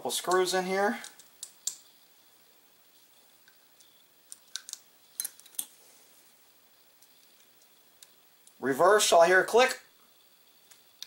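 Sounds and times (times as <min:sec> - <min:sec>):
small metal clicks of screws: 0:03.5 - 0:05.7.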